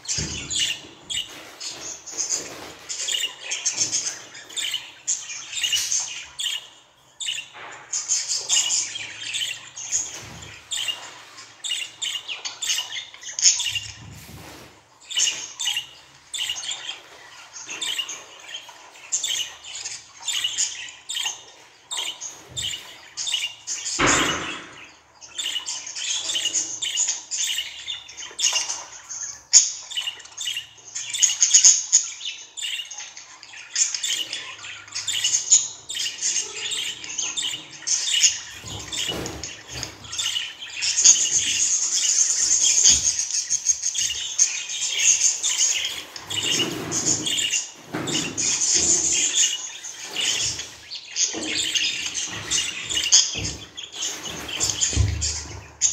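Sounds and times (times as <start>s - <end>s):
rustling: 1.1s - 4.7s.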